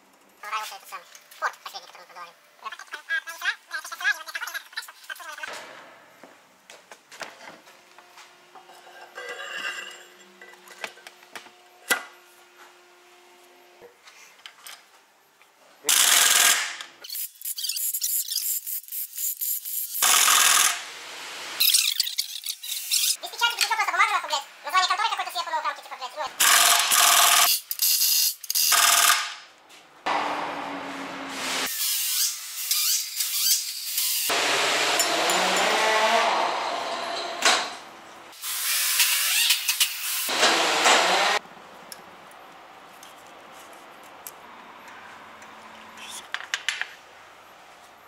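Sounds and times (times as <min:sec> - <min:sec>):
steady mechanical noise with hiss: 0:00.0 - 0:34.9
pneumatic wrench running: 0:15.9 - 0:20.8, 0:26.4 - 0:29.4, 0:38.4 - 0:41.4.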